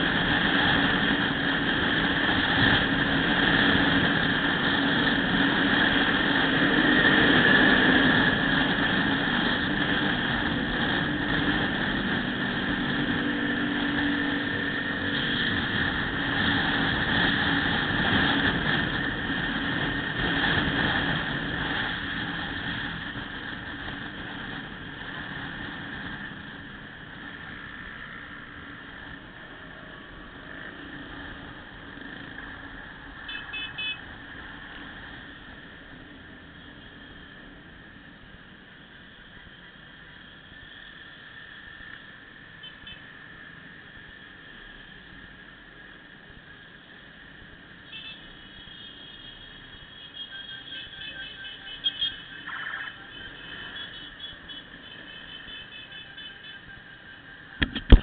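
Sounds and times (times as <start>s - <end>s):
wind rushing over microphone: 0.0s - 33.0s
muffled traffic noise: 0.0s - 58.0s
road noise: 0.0s - 58.0s.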